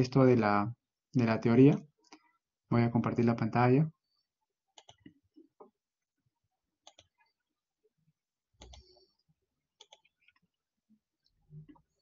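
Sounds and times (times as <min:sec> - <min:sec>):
computer mouse clicks: 0:04.7 - 0:05.2, 0:06.8 - 0:07.2, 0:08.6 - 0:09.1, 0:09.8 - 0:10.5.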